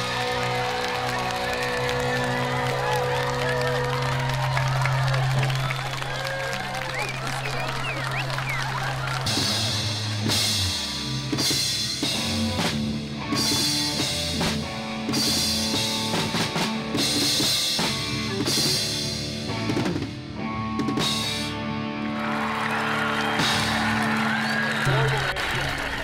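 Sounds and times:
drum kit: 0.0s - 4.8s, 8.4s - 21.7s, 22.4s - 26.0s
electric guitar: 9.0s - 25.9s
electric bass: 9.1s - 22.1s.

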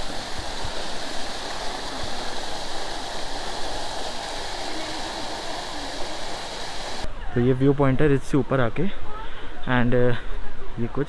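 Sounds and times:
water fountain splashing: 0.0s - 7.1s.

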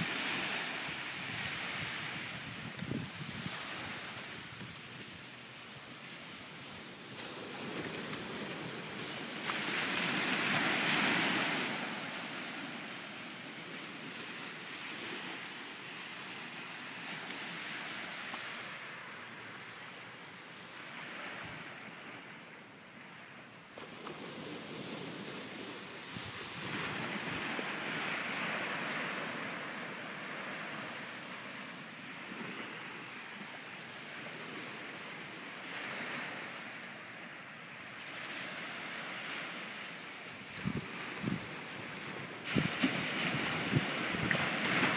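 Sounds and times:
wind buffeting microphone: 0.0s - 5.2s, 40.5s - 44.9s
ocean waves breaking: 0.0s - 44.9s.

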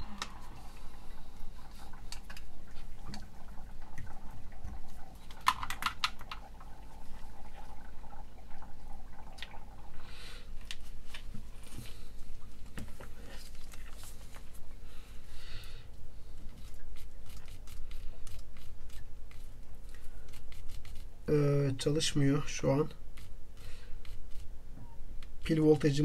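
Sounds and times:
faint electrical hum: 0.0s - 26.0s
small parts clicking and tapping: 5.3s - 6.5s.

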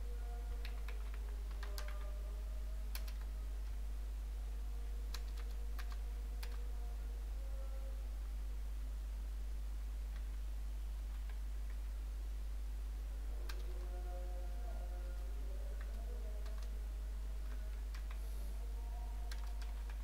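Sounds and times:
steady low hum: 0.0s - 20.0s
keyboard typing clicks: 0.6s - 2.0s, 2.9s - 3.2s, 5.1s - 6.6s, 19.3s - 20.0s.

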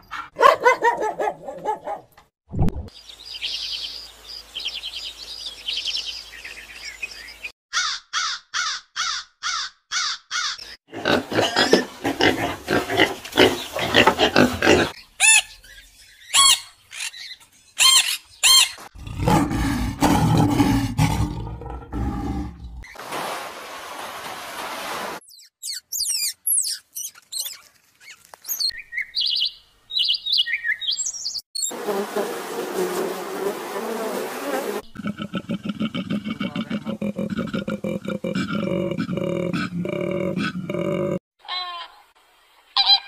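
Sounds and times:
pigs squealing and grunting: 10.9s - 15.5s
low grunting: 19.0s - 22.9s, 34.9s - 41.2s
high animal chirping: 25.3s - 31.0s.

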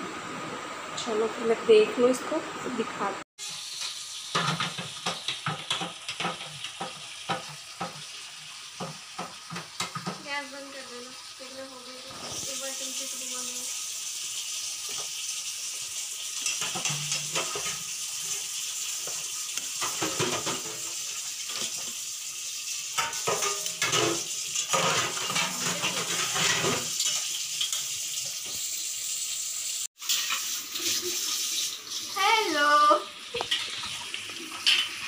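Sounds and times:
noodles sizzling in a pan: 3.4s - 35.0s
spoon scraping a pan: 16.4s - 21.8s, 23.0s - 28.0s.

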